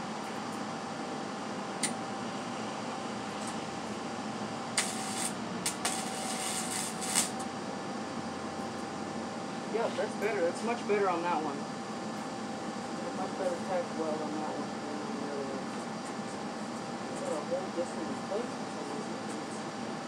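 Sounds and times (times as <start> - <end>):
steady background noise: 0.0 - 20.0
welding arc crackling and sputtering: 1.6 - 9.0.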